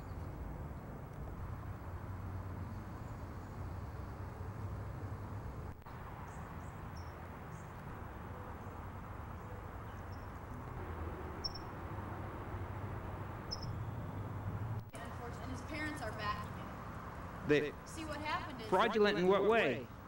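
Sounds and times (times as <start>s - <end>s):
faint high chirps: 11.4s - 11.7s, 13.5s - 14.0s.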